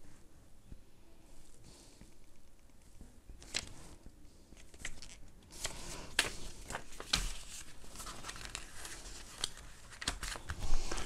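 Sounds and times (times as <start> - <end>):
paper rustling and crackling: 3.4 - 4.0, 4.6 - 11.0.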